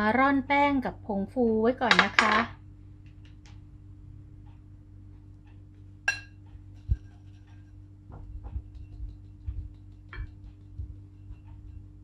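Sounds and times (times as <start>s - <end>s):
low hum: 2.6s - 12.0s
glass clink: 6.1s - 6.4s.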